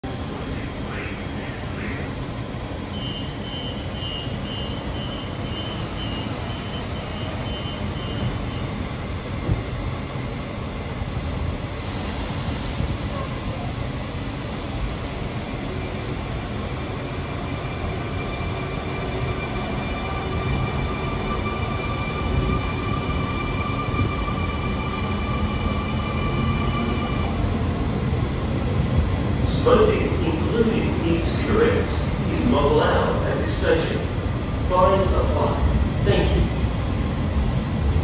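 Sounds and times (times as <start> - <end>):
train rumble: 0.0 - 38.0
train door warning beeps: 2.9 - 8.7
air hiss: 11.6 - 13.8.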